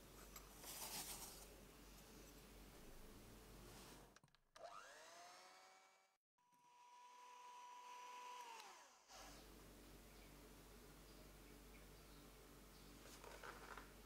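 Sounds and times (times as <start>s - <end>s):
electric hand mixer motor whine: 4.6s - 9.4s.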